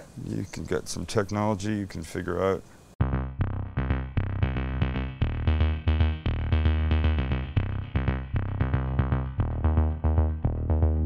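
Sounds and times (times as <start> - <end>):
deep bass: 3.0 - 11.0
drum-machine beat: 3.0 - 11.0
plucked synthesizer notes: 3.0 - 11.0.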